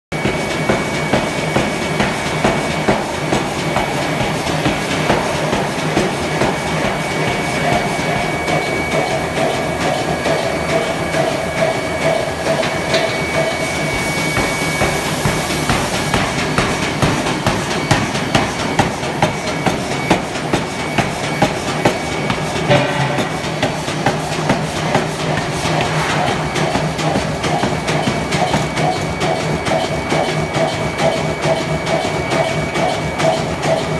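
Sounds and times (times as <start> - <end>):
continuous machine noise: 0.1 - 33.9
pneumatic forging hammer striking: 21.8 - 26.8.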